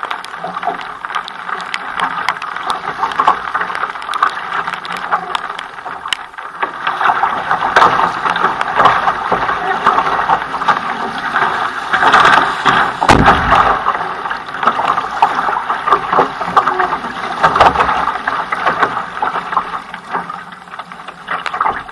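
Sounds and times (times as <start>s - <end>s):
water splashing along canoe hull: 0.0s - 21.9s
sharp knock: 13.1s - 13.8s.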